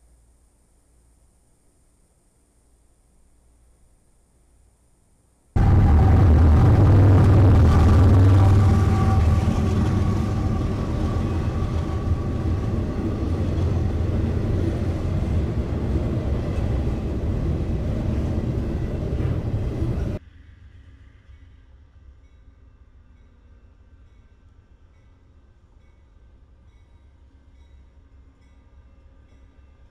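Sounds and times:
diesel locomotive droning: 0:05.6 - 0:20.2
freight cars clattering on rails: 0:05.6 - 0:20.2.

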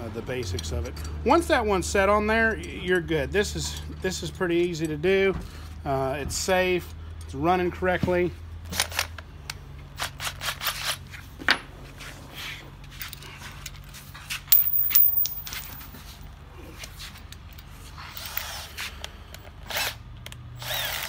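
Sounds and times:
tools clicking and knocking: 0:14.5 - 0:15.9.

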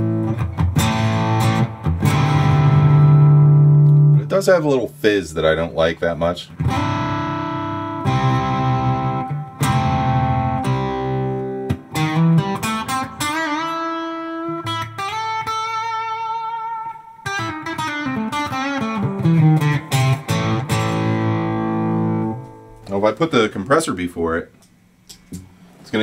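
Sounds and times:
overdriven electric guitar lead: 0:00.0 - 0:04.3, 0:06.5 - 0:22.9.

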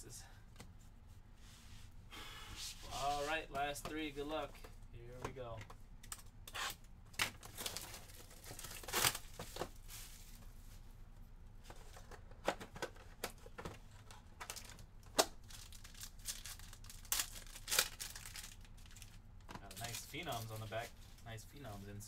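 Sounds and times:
foil pack crinkling: 0:07.2 - 0:10.2, 0:14.4 - 0:22.0.

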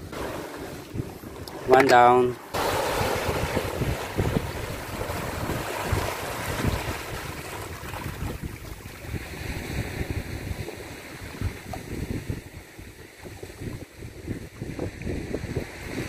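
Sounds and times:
small waves washing over rocks: 0:00.0 - 0:12.0
wind rumbling on microphone: 0:00.0 - 0:16.0.

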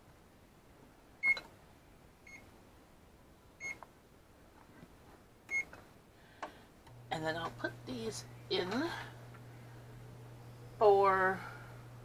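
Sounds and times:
oven control panel beeps: 0:01.2 - 0:01.4, 0:03.6 - 0:03.8, 0:05.5 - 0:05.7.

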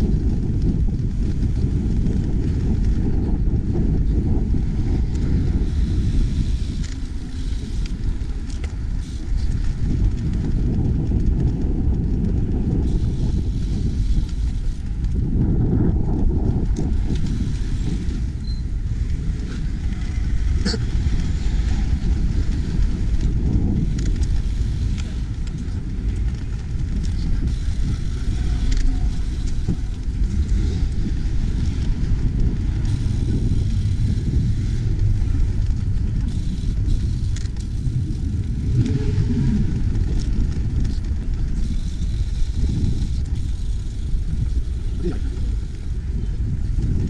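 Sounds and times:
city traffic rumble: 0:00.0 - 0:47.0
wind buffeting microphone: 0:00.0 - 0:47.0.

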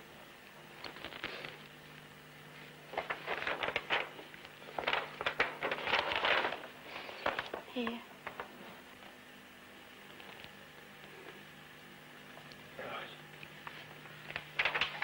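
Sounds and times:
faint low hum: 0:00.0 - 0:15.0
paper map rustling: 0:00.7 - 0:09.1, 0:13.6 - 0:15.0.

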